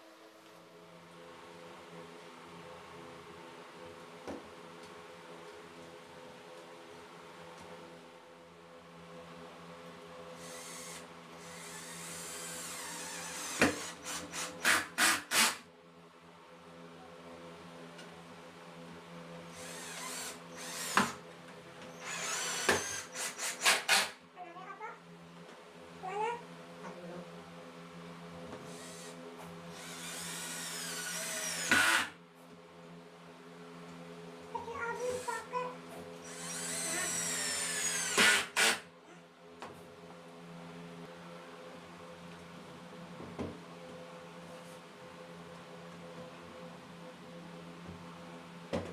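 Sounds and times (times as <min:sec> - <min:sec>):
cordless drill bursts: 0:10.4 - 0:15.6, 0:19.6 - 0:21.2, 0:22.0 - 0:24.2, 0:28.7 - 0:32.1, 0:36.2 - 0:38.8.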